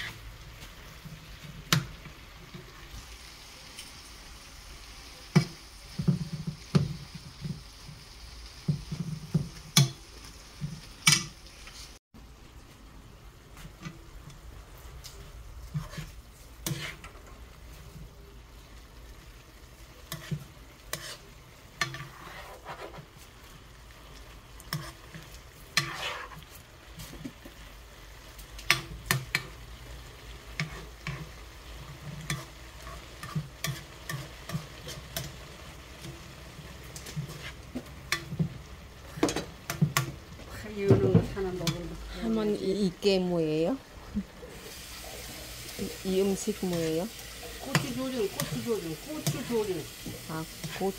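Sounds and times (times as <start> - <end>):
wooden spoon scraping pan: 0.0 - 2.8, 15.6 - 17.2, 20.1 - 23.3, 24.7 - 27.6, 30.6 - 41.8
low frying sizzle: 0.0 - 50.9.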